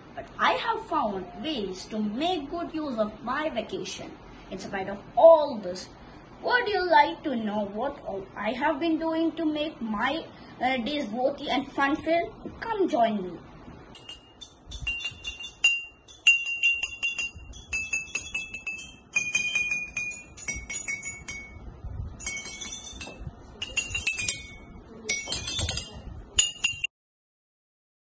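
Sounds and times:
drinking glasses struck in a tune: 14.0 - 26.9.

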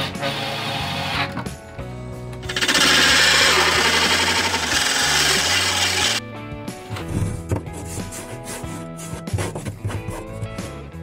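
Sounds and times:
background music: 0.0 - 11.0
power drill running: 2.4 - 6.2.

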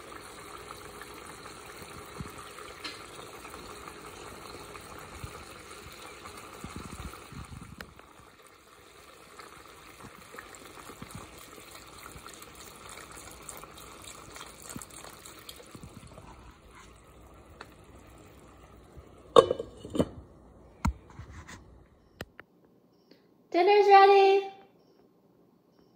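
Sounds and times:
liquid pouring into pan: 0.0 - 20.4
sauce bubbling: 0.0 - 21.8
glass lid clanking on pan: 19.3 - 20.2.

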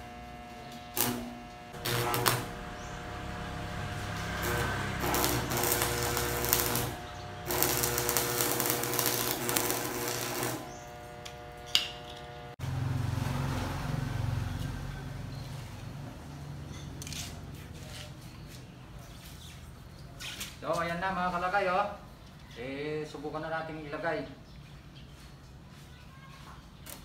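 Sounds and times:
welding arc crackling: 0.0 - 12.6
electrical hum: 0.0 - 16.5.

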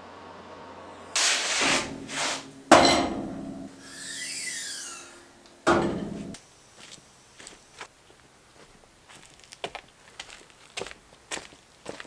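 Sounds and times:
quick whooshes: 1.2 - 2.6
ringing metal clanks: 2.0 - 6.4
wavering metallic shimmer: 3.5 - 6.4.

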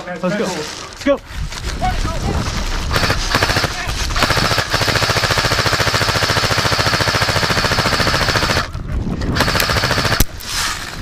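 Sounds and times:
airsoft gun full-auto burst: 2.9 - 8.7, 9.4 - 10.4.

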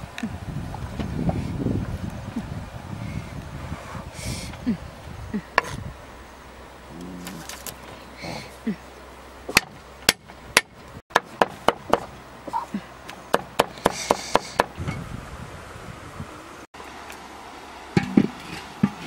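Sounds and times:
cleaver chopping on wooden block: 9.5 - 12.1.

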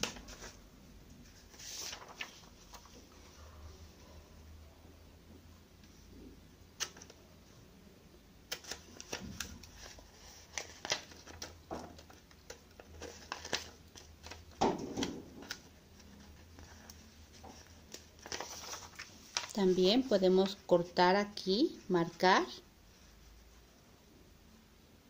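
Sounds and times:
paper rustling: 0.0 - 0.6, 1.2 - 3.8, 8.5 - 20.7.

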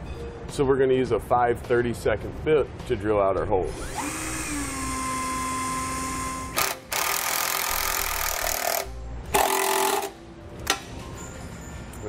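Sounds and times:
cordless drill whining: 3.7 - 8.8
drill driving screw: 3.7 - 10.1.

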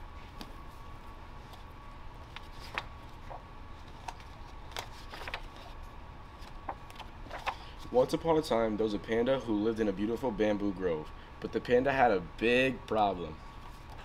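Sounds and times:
faint steady hum: 0.0 - 14.0
book pages rustling: 0.2 - 7.9.

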